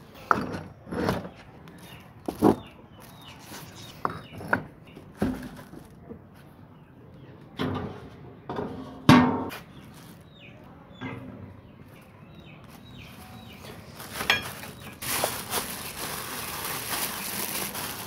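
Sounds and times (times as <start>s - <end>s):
steel bowl set on wire rack: 7.6s - 18.0s.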